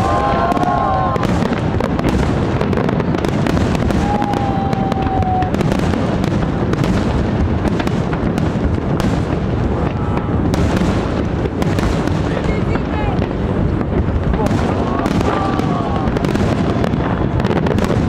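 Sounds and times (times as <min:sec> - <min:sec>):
fireworks bangs and crackles: 0:00.0 - 0:18.0.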